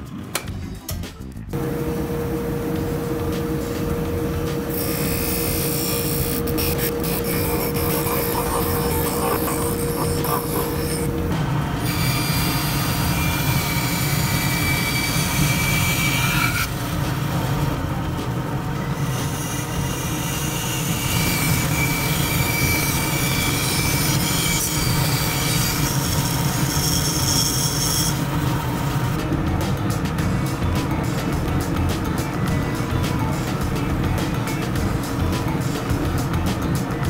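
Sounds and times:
bandsaw cutting plywood: 0:02.6 - 0:11.2
high-pitched blade squealing: 0:04.7 - 0:11.1.

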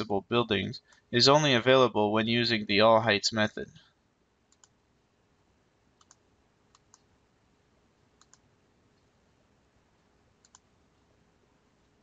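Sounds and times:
computer mouse clicks: 0:04.5 - 0:04.8, 0:06.0 - 0:07.1, 0:08.2 - 0:09.1, 0:10.4 - 0:10.7.

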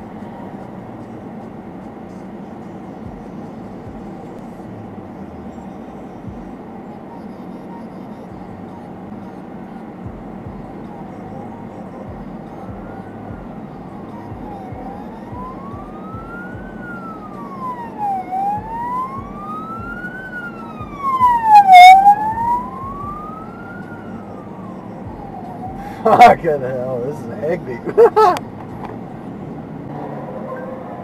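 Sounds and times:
car cabin noise: 0:00.0 - 0:31.0
emergency vehicle siren wailing: 0:06.2 - 0:28.4, 0:29.9 - 0:31.0
loud siren blast: 0:14.2 - 0:26.0.

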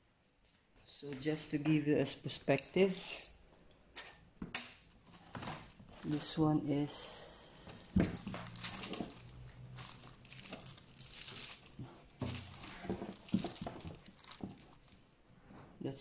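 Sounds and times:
plastic film crinkling: 0:05.0 - 0:06.6, 0:08.1 - 0:15.2.

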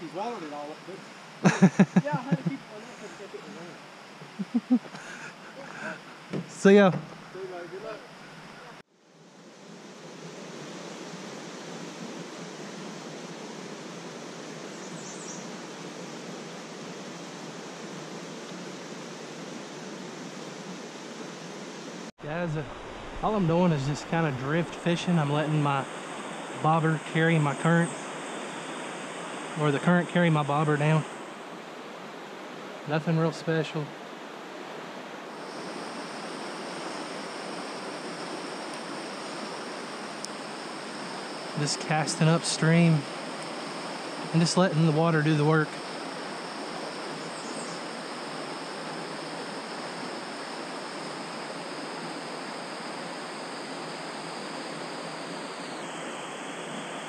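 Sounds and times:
creek water rushing: 0:15.4 - 0:57.0.

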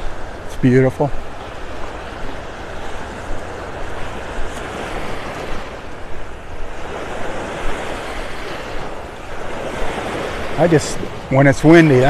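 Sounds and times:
waves breaking on sandy beach: 0:00.0 - 0:12.0
wind rumbling on microphone: 0:00.0 - 0:12.0.

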